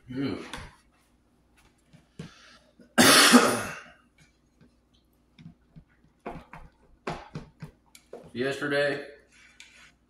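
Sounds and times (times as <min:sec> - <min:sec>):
man coughing: 0:03.0 - 0:04.0.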